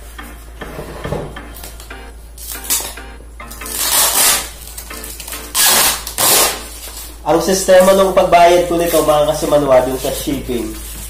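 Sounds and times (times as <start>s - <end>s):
faint background music: 0.0s - 11.0s
knife cutting packaging: 3.8s - 7.1s
stretch wrap and tape ripping: 3.8s - 7.2s.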